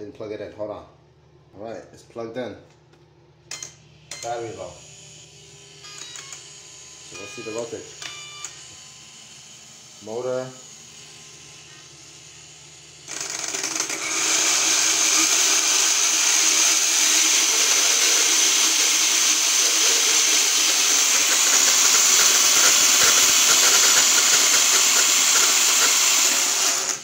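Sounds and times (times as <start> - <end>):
rc car drivetrain whine: 3.5 - 27.0
gear noise: 13.1 - 27.0.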